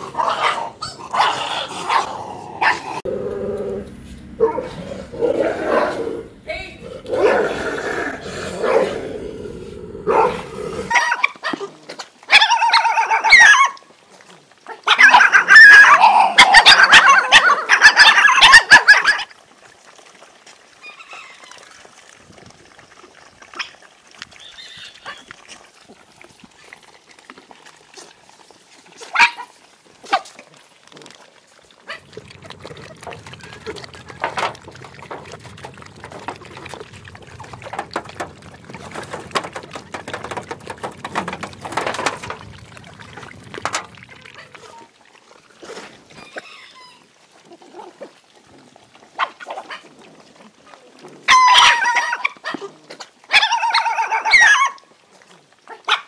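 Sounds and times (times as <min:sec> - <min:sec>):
dogs growling and snarling: 0:00.0 - 0:13.4, 0:31.9 - 0:44.9
dogs eating with clicks and shuffling: 0:00.0 - 0:56.0.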